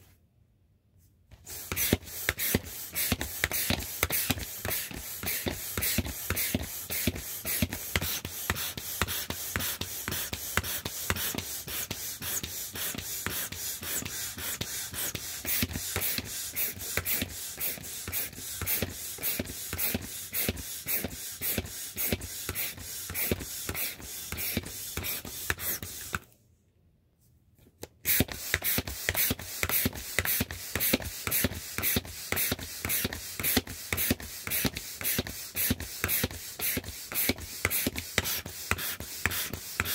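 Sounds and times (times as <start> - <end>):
manual air pump strokes: 1.3 - 26.3, 28.0 - 39.9.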